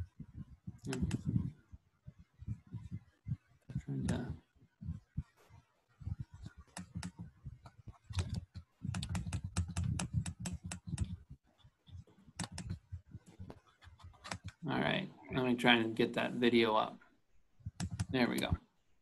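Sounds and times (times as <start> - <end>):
laptop keyboard typing: 6.0 - 11.3, 11.9 - 14.6, 17.7 - 18.6.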